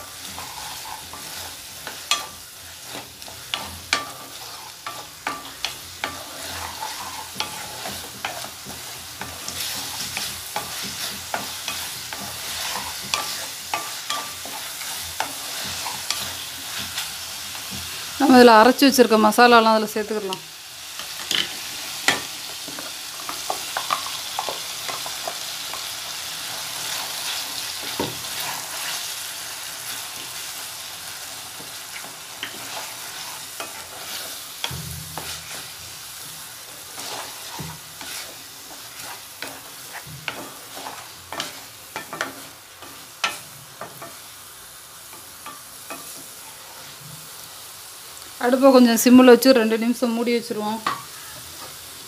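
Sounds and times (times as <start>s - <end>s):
spatula scraping and knocking pan: 0.0s - 18.2s, 21.0s - 30.4s, 31.2s - 44.3s
food sizzling in a pan: 0.0s - 52.0s.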